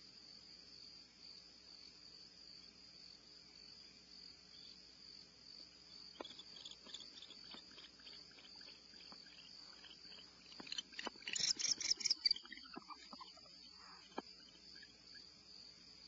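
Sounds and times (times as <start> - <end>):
crickets trilling: 0.0 - 16.0
rapid chattering pulses: 6.2 - 14.9.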